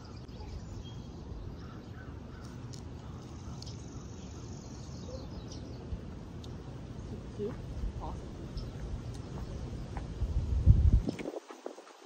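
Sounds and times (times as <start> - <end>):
wind buffeting microphone: 5.6 - 12.0.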